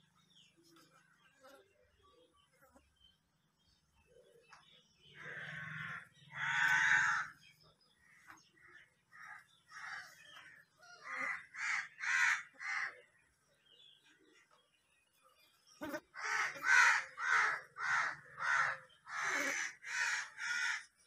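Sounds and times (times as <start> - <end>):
crows cawing: 5.1 - 7.4, 9.1 - 13.0, 16.1 - 21.0.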